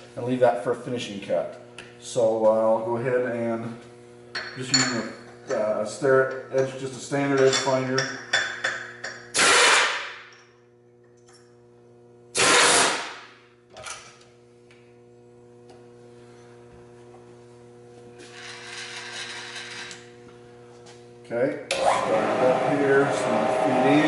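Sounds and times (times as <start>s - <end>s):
steady electrical hum: 0.0s - 24.0s
pneumatic tool bursts: 9.3s - 10.2s, 12.3s - 13.3s.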